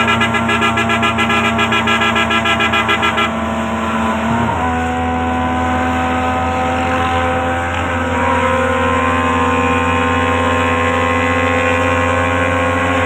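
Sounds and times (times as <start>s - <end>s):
vehicle horn: 0.0s - 3.5s.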